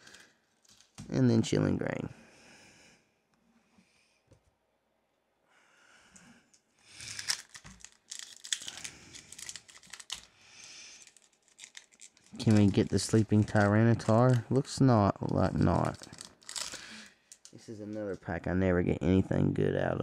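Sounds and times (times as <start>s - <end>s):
foil wrapper crinkling: 7.0s - 17.6s.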